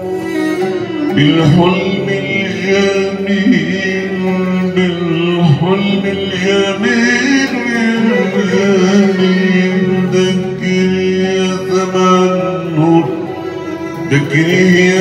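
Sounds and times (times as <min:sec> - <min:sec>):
oud accompaniment: 0:00.0 - 0:15.0
man singing melismatic vocals: 0:00.9 - 0:15.0.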